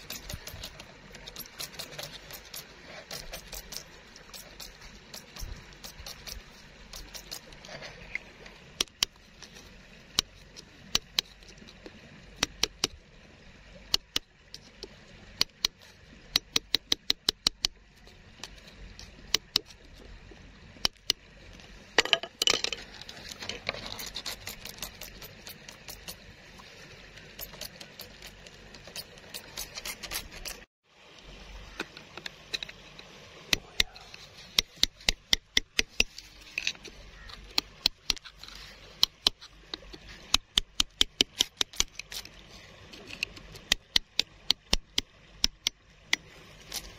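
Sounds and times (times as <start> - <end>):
stone scraping in gravelly mud: 0.0 - 11.9, 21.6 - 30.7, 31.6 - 40.4, 41.2 - 43.8, 46.2 - 46.9.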